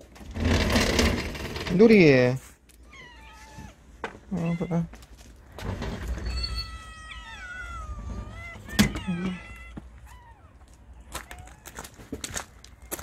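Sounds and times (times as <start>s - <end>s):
cats meowing: 2.8s - 5.1s, 6.0s - 13.0s
footsteps on gravel: 4.9s - 5.6s, 9.4s - 13.0s.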